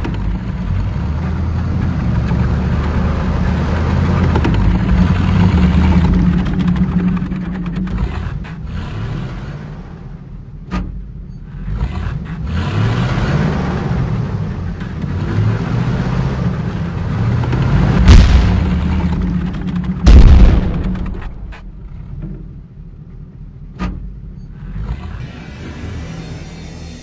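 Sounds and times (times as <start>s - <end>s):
heavy engine rumbling: 0.0s - 27.0s
loud cannon booms: 18.0s - 21.5s.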